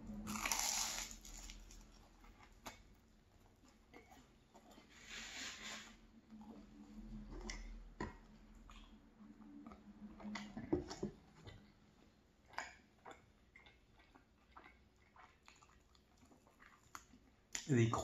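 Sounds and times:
chewing croissant with mouth clicks: 0:00.3 - 0:05.1, 0:06.3 - 0:17.8.

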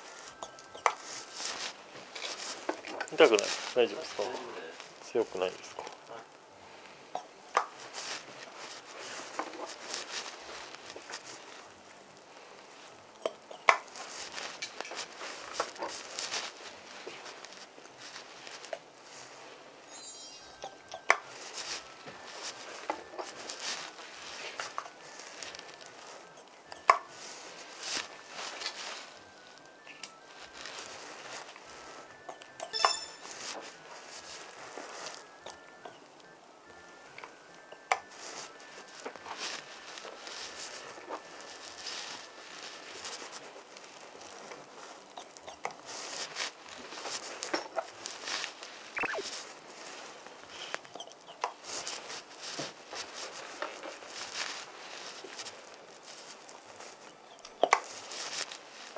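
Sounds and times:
soft rustling: 0:00.0 - 0:58.9
falling squeak: 0:19.9 - 0:21.1, 0:32.6 - 0:33.4, 0:48.9 - 0:49.5.

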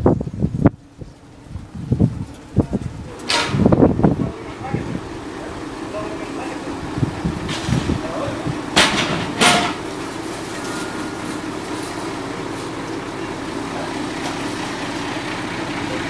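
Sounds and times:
truck diesel engine idling: 0:00.0 - 0:16.0.

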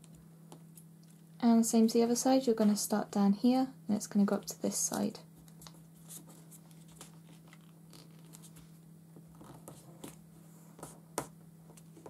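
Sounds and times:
steady low hum: 0:00.0 - 0:12.0
paper folding and crinkling: 0:05.4 - 0:10.2.

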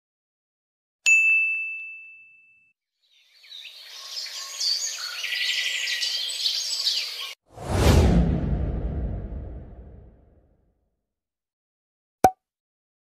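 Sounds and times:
bright bell ding: 0:01.1 - 0:02.7
birds chirping: 0:03.0 - 0:07.4.

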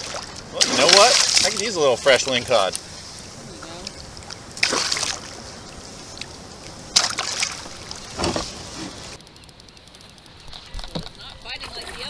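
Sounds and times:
water sloshing: 0:00.0 - 0:09.2
water splashing: 0:00.0 - 0:09.2.

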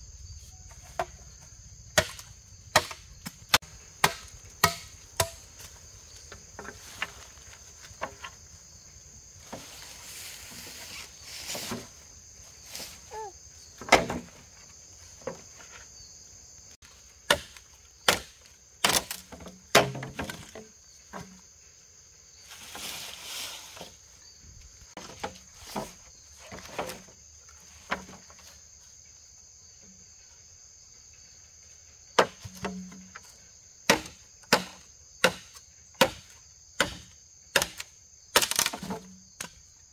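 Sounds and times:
insects droning: 0:00.0 - 0:39.9
machete chopping bamboo: 0:01.9 - 0:05.7, 0:17.2 - 0:20.6, 0:32.2 - 0:33.0, 0:33.8 - 0:39.6.

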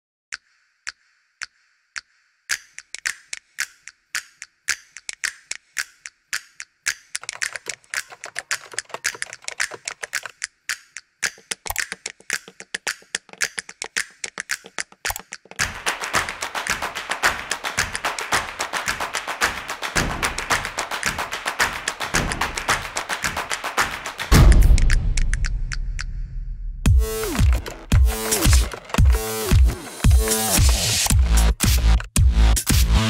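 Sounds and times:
music: 0:00.4 - 0:33.0
keyboard typing: 0:07.2 - 0:10.5, 0:11.2 - 0:24.4, 0:26.9 - 0:32.2.

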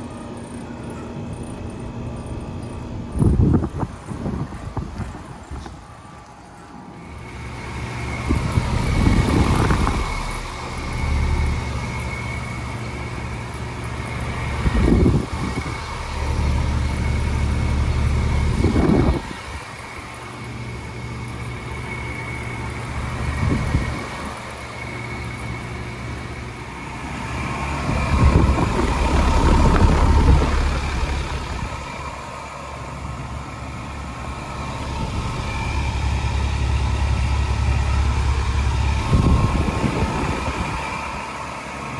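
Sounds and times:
air conditioner unit humming: 0:00.0 - 0:41.9
brief rumbles: 0:26.8 - 0:33.0.

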